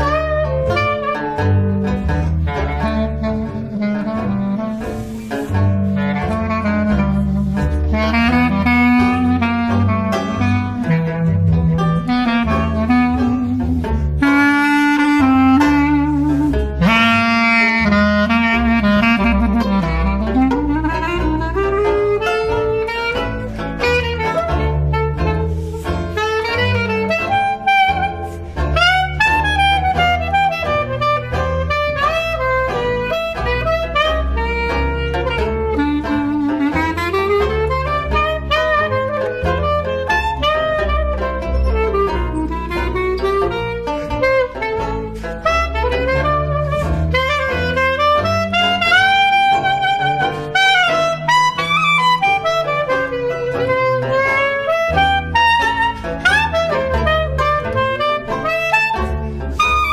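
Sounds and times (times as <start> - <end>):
clarinet jazz solo: 0.0 - 59.9
strummed banjo: 0.0 - 59.9
upright bass walking line: 0.0 - 59.9.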